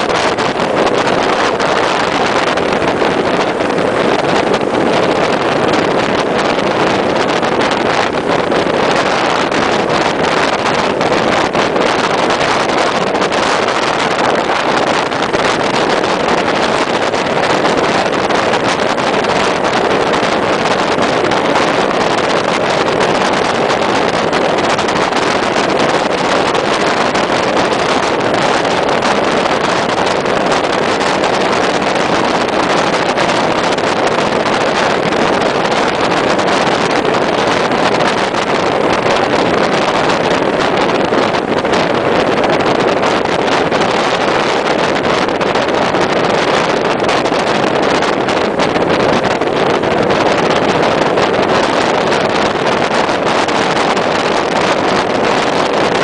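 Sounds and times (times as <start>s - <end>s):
wind and road noise: 0.0s - 56.0s.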